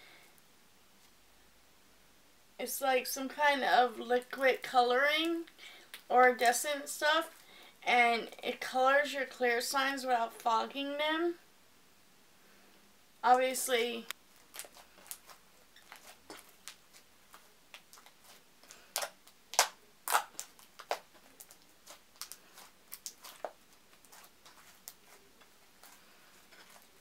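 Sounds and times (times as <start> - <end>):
slime clicking and popping: 18.9 - 23.5.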